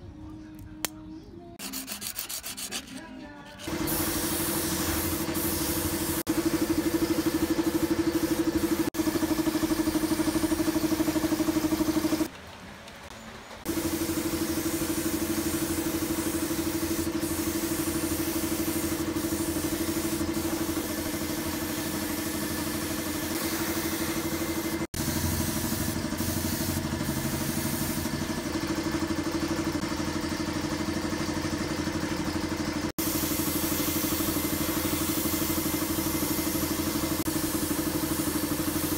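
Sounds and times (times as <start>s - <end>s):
air compressor motor humming: 3.7s - 12.3s, 13.7s - 38.9s
spray gun hissing: 3.7s - 12.3s, 13.7s - 28.1s, 33.0s - 38.9s.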